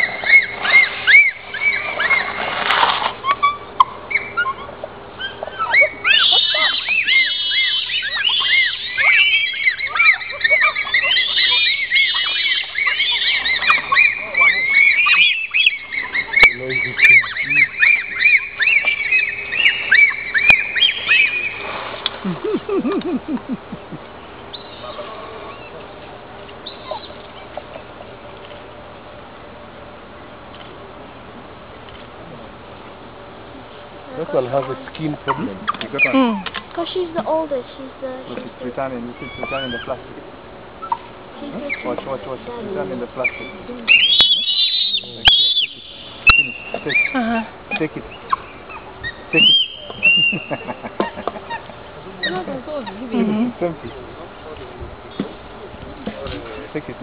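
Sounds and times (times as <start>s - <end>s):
high chirps: 0.0s - 2.4s, 3.2s - 25.8s, 26.5s - 28.2s, 39.1s - 40.1s, 43.1s - 53.1s
squeaky animal calls: 0.0s - 22.8s, 24.4s - 25.9s, 26.6s - 28.3s, 33.5s - 53.6s
bonobos hooting: 0.0s - 57.0s.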